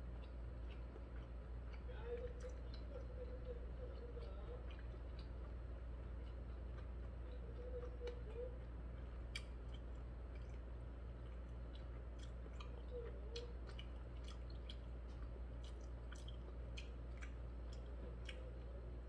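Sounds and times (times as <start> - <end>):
person chewing food: 0.0 - 19.0.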